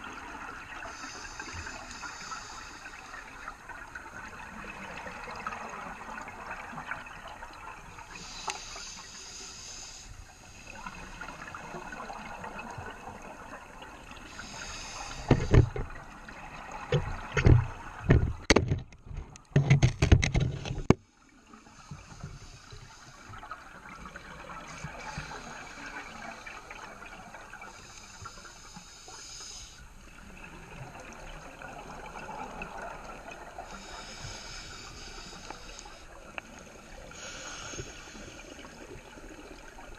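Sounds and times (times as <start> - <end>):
scuba regulator hissing inhalation: 0.9 - 3.2, 8.2 - 10.6, 14.3 - 15.7, 25.0 - 26.5, 27.8 - 29.9, 33.6 - 36.1, 37.1 - 38.8.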